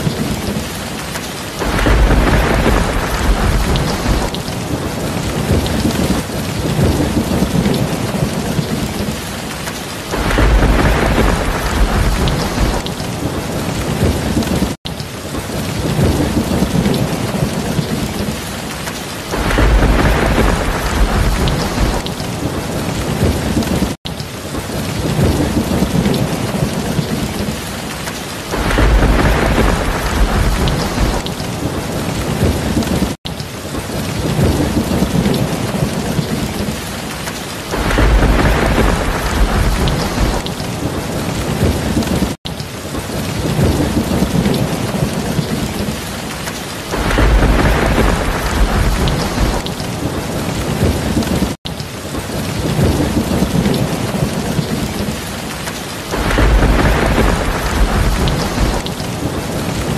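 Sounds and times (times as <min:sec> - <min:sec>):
heavy rain pouring: 0:00.0 - 0:59.9
low thunder rumble: 0:01.6 - 0:09.3, 0:10.1 - 0:14.8, 0:19.3 - 0:24.0, 0:28.5 - 0:33.2, 0:37.7 - 0:42.4, 0:46.9 - 0:51.6, 0:56.1 - 0:59.9.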